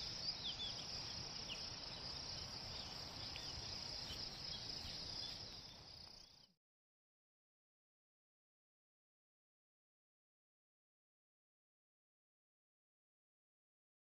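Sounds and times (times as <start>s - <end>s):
insects chorus: 0.0s - 6.5s.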